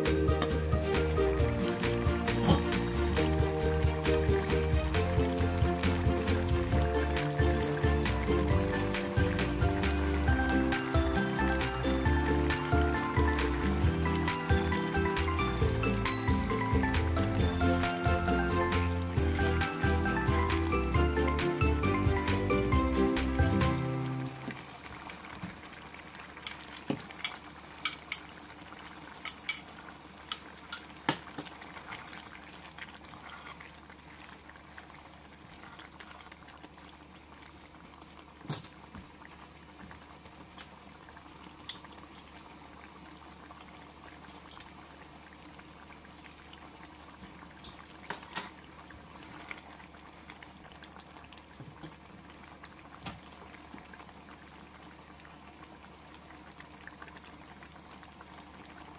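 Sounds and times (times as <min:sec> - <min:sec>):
stew bubbling: 0:00.0 - 0:10.7, 0:24.4 - 0:58.9.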